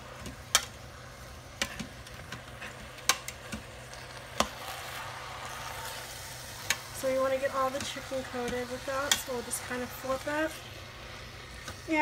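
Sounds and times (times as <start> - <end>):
food sizzling: 0.0 - 12.0
metal tongs clinking on pot: 7.7 - 9.4.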